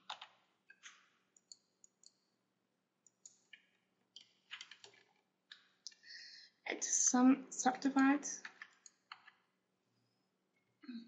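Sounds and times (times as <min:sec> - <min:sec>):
keyboard keystrokes: 0:00.0 - 0:01.6, 0:04.2 - 0:05.0
mouse clicks: 0:00.1 - 0:02.2.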